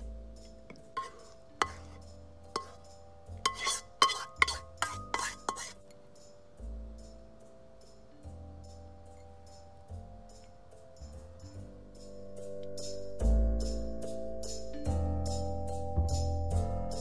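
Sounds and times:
background music: 0.0s - 17.0s
spatula scraping a wok: 0.7s - 5.9s.

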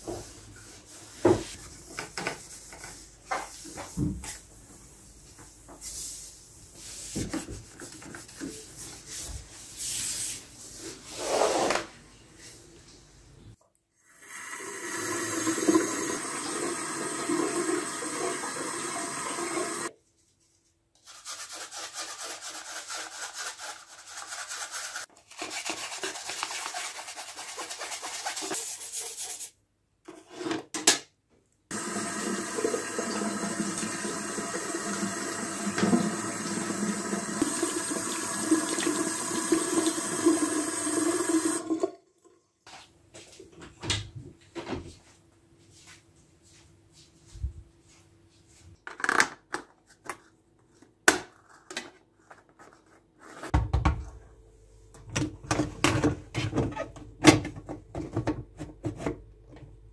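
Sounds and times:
tap water running into sink: 14.2s - 19.9s, 31.7s - 42.0s.

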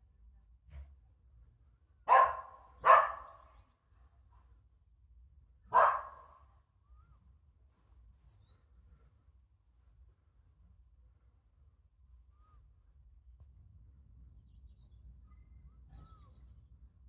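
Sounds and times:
dog barking: 2.1s - 3.5s, 5.7s - 6.4s.

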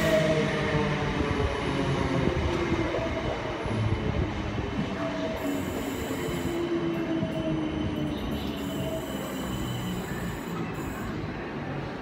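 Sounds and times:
train wheels rumbling on rail: 0.0s - 11.2s
short pitched wheel squeals: 5.4s - 6.7s, 8.2s - 11.3s.

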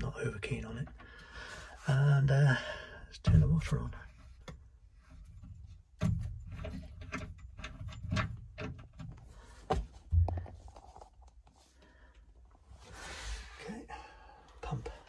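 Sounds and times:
dull thumps: 9.0s - 10.8s.

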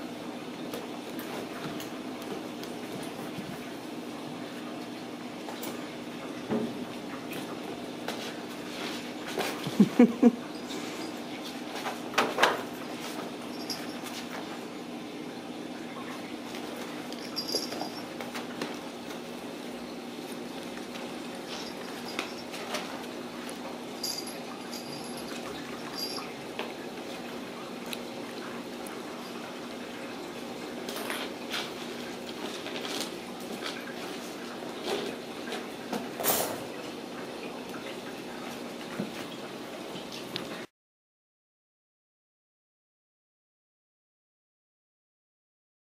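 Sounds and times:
kittens playing with toys on tile: 16.5s - 18.7s, 20.3s - 26.3s, 30.9s - 35.6s.

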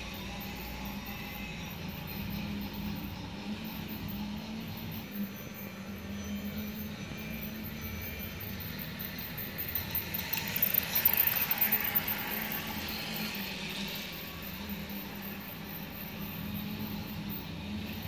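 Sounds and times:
toy train clicking on track: 7.9s - 17.8s.

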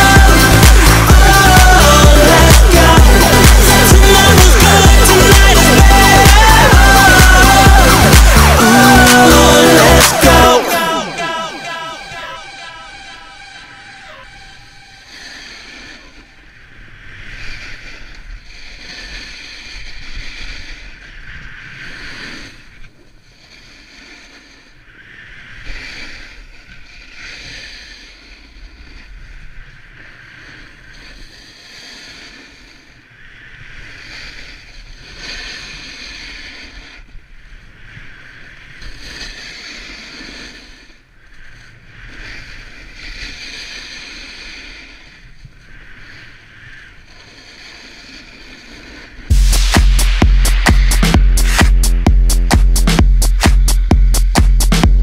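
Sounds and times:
skis scraping on snow: 33.9s - 49.8s.

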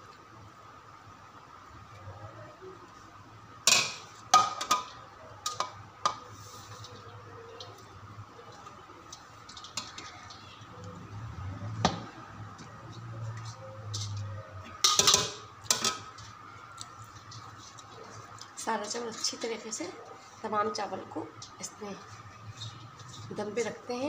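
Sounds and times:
metal utensils clanking on a pot: 3.7s - 6.2s, 13.9s - 16.2s.

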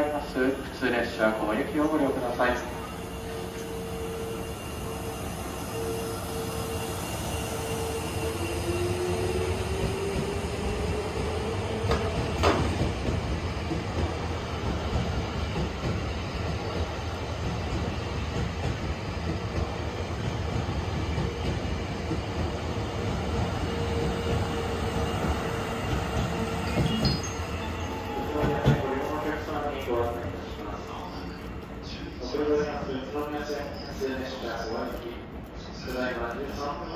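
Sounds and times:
train wheels rumbling on rail: 0.0s - 36.9s.

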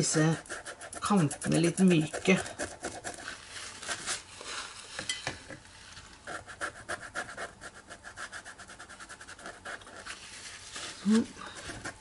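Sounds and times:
brush scrubbing on paper: 0.0s - 5.0s.

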